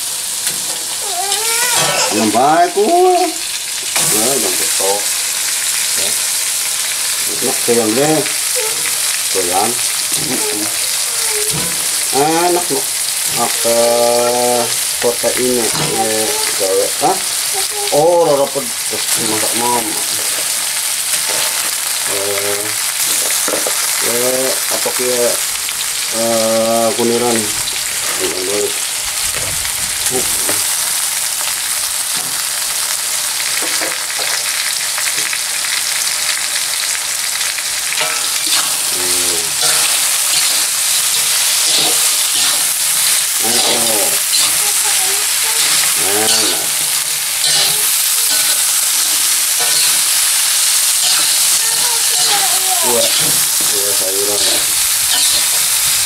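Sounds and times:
food sizzling in a wok: 0.0 - 56.0
metal spatula scraping pan: 37.9 - 56.0.

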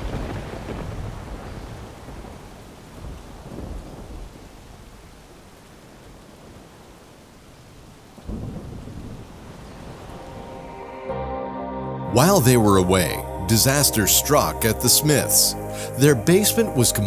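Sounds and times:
thunder rumbling: 0.0 - 5.2, 8.2 - 11.0
steady rain: 0.0 - 11.1, 12.2 - 17.0.

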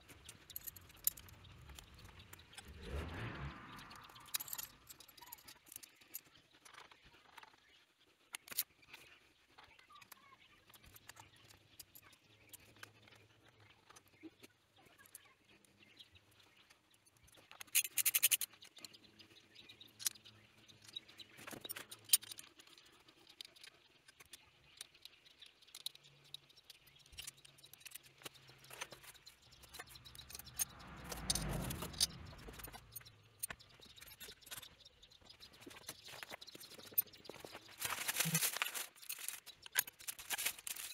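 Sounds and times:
low rumble: 2.5 - 4.9, 29.6 - 33.2
tool clicks and metal rattles: 35.6 - 40.9.

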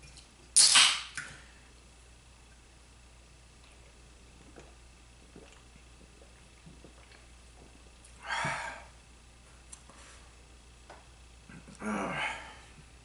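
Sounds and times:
man exhaling loudly: 8.2 - 8.9.

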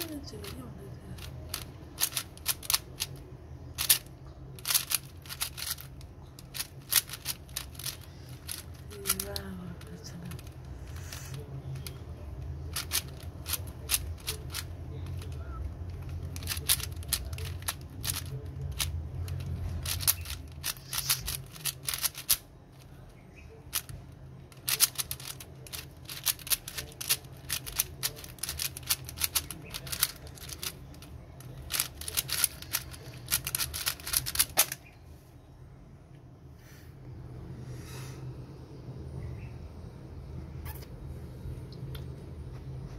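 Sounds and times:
plastic puzzle cube clicking: 1.2 - 3.2, 3.8 - 9.2, 9.8 - 10.6, 12.7 - 22.4, 23.7 - 34.8.

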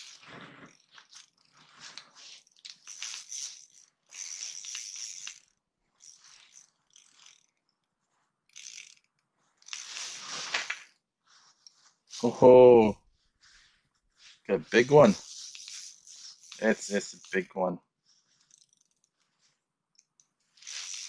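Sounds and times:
fishing reel ratcheting whir: 0.0 - 11.0, 14.8 - 17.5, 18.2 - 21.0.

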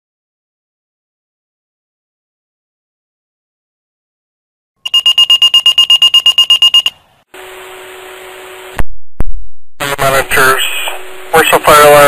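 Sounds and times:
rapid high-pitched pager beeping: 4.8 - 7.0
speaker hiss with low hum: 7.4 - 12.0.

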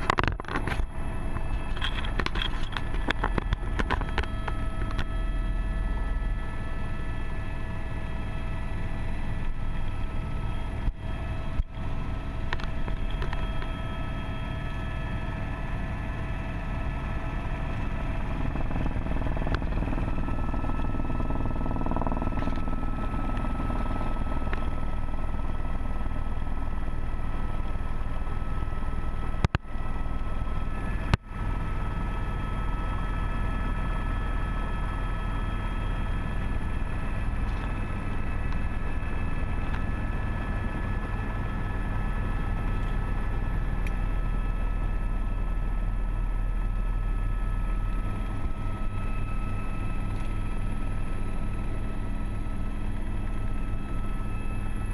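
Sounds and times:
helicopter cabin drone: 0.0 - 54.9.

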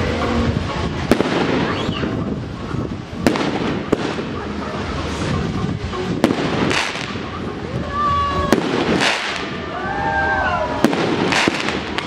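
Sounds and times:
crackle of sparks: 6.2 - 7.3, 8.5 - 9.6, 10.8 - 12.0
fireworks shells bursting: 6.2 - 7.3, 8.5 - 9.6, 10.8 - 12.0.

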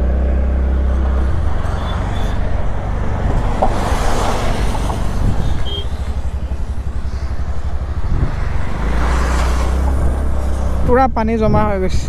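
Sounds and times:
wind rumble on microphone: 0.0 - 12.0
scooter engine running: 4.2 - 10.8.

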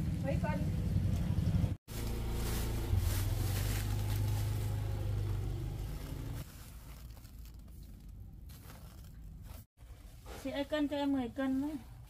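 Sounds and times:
low engine hum: 0.0 - 6.9.

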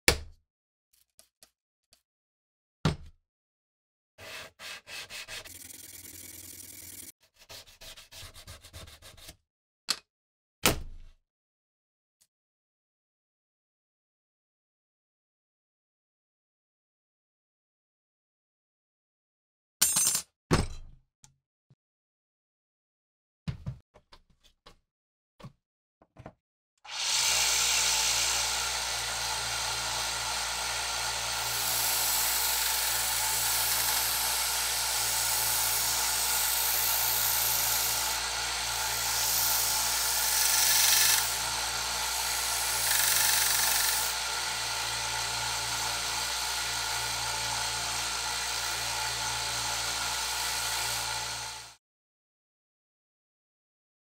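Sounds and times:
belt sander grinding metal: 5.2 - 7.1, 26.9 - 51.7.

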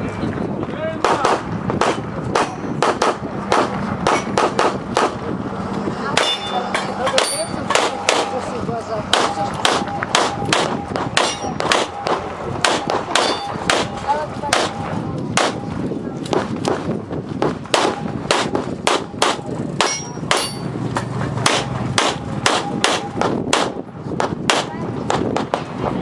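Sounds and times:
pistol shots: 1.0 - 5.2, 7.2 - 8.4, 9.1 - 15.6, 17.4 - 20.6, 21.4 - 25.7.

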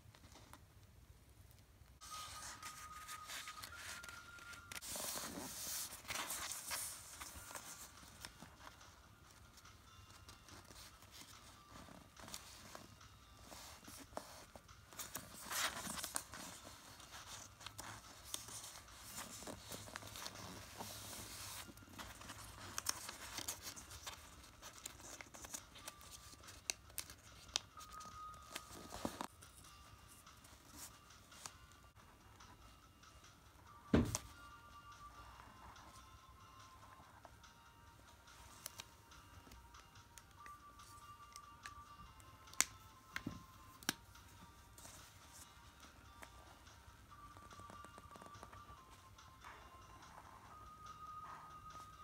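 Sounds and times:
paper rustling and scraping: 2.0 - 8.7, 10.7 - 29.3.

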